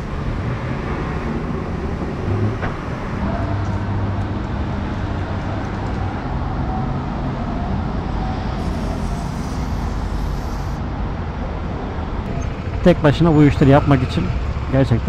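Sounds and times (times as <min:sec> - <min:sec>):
traffic rumble: 0:00.0 - 0:15.0
aerosol can hissing: 0:08.6 - 0:10.8.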